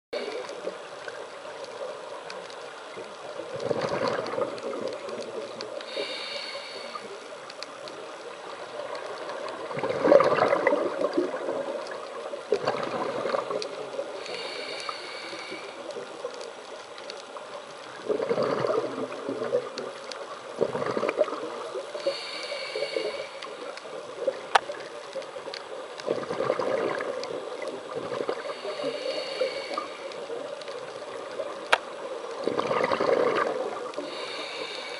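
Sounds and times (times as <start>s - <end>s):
underwater background hiss: 0.2s - 34.9s
exhaled bubbles bursting: 3.5s - 5.4s, 9.4s - 13.7s, 18.0s - 19.8s, 20.6s - 21.7s, 26.0s - 28.6s, 32.4s - 34.1s
regulator inhale hiss with whistle: 5.9s - 7.2s, 14.2s - 15.9s, 22.0s - 23.6s, 28.4s - 30.2s, 34.0s - 34.9s.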